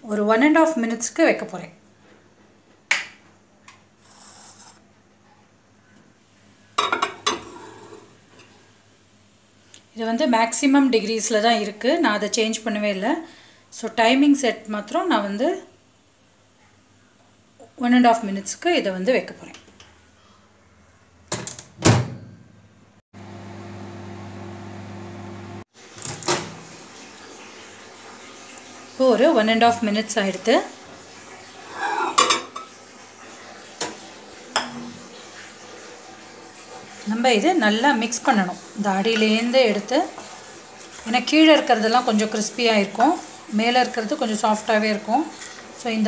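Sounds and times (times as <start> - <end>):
faint scrape: 4.0 - 4.8
microwave oven humming: 22.0 - 27.1.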